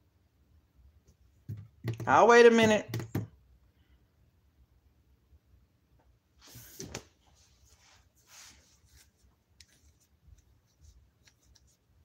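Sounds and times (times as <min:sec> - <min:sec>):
soft rustle: 0:06.4 - 0:12.0.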